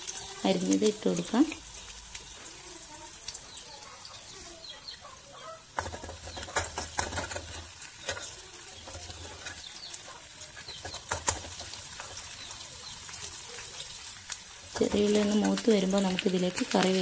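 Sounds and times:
shallots sizzling in hot oil: 0.0s - 17.0s
metal ladle stirring: 5.7s - 12.8s.

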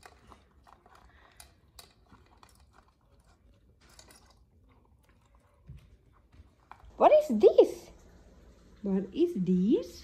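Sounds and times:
puppy crunching carrots: 0.0s - 7.5s.

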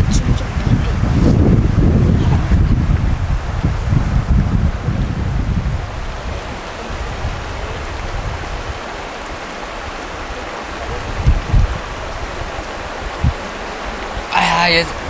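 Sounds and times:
river flowing: 0.0s - 3.9s, 4.8s - 15.0s
wind buffeting microphone: 0.0s - 15.0s.

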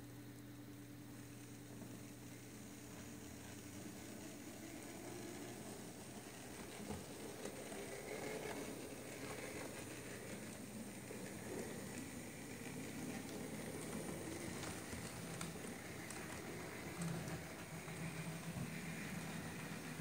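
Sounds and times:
model train motor whirring: 1.2s - 20.0s.

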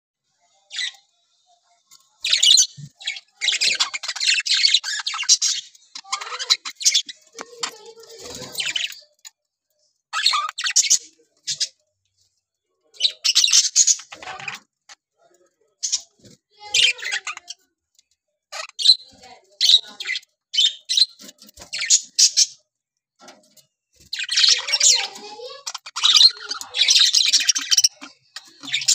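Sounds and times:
budgerigars chattering and chirping: 2.1s - 9.3s, 10.1s - 11.8s, 12.9s - 15.0s, 15.7s - 17.6s, 18.5s - 22.6s, 24.1s - 28.9s.

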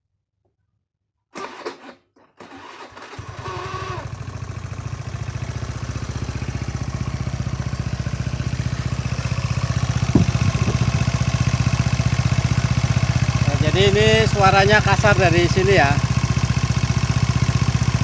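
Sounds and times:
electric starter whine: 1.4s - 5.4s, 9.8s - 13.7s
scooter engine idling: 2.9s - 18.0s.

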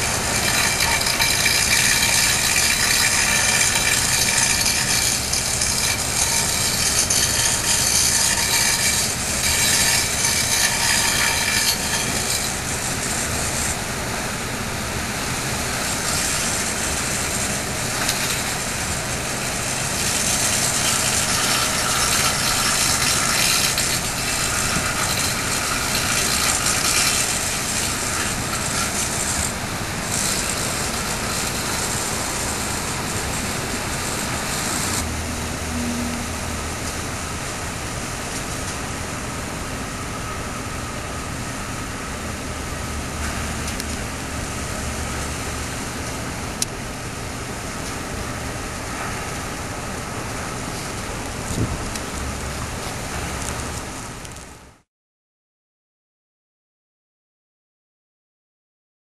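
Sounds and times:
water jet pouring into water: 0.0s - 13.5s
machine whine: 0.0s - 54.3s
ship engines and pumps running: 0.0s - 54.8s.

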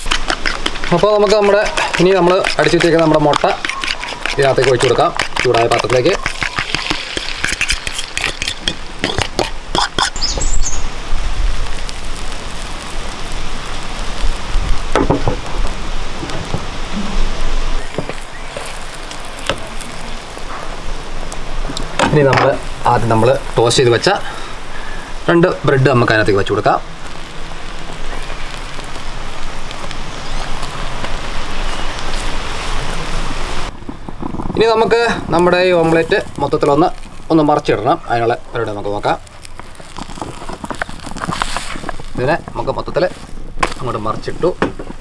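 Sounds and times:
egg sizzling in butter: 0.0s - 16.2s, 17.7s - 45.0s.

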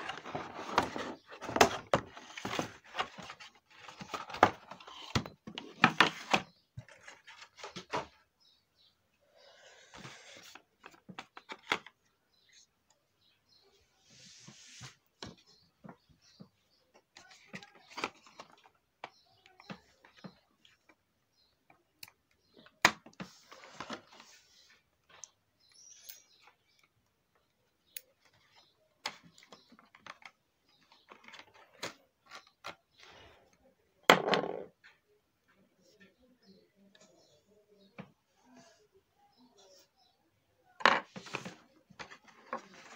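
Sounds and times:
loud packaging rustling: 0.0s - 8.0s.

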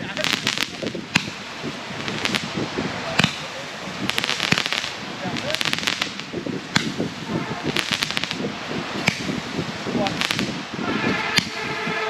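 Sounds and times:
fireworks crackling and popping: 0.0s - 12.0s
people's voices: 0.0s - 12.0s.

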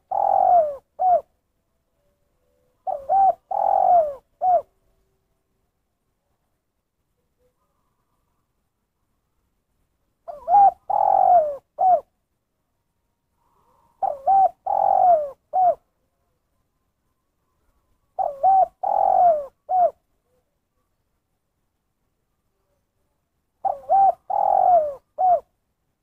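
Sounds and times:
dove cooing: 0.0s - 1.3s, 2.5s - 4.8s, 10.2s - 12.2s, 13.5s - 15.9s, 18.1s - 20.4s, 23.6s - 25.6s.

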